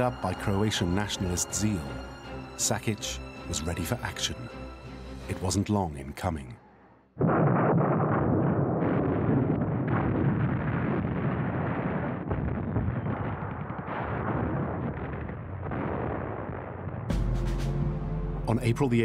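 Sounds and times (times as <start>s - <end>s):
artillery fire and gunfire: 7.2s - 17.1s.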